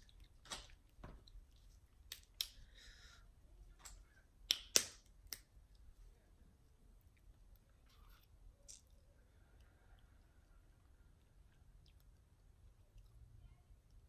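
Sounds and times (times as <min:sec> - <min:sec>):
shells clicking and cracking: 0:02.0 - 0:02.6, 0:03.8 - 0:05.8, 0:08.6 - 0:09.0.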